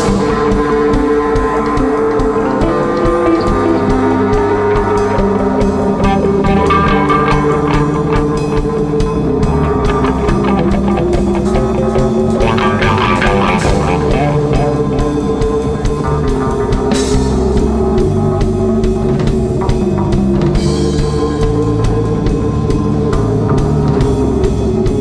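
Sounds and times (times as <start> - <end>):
psychedelic rock music: 0.0 - 25.0.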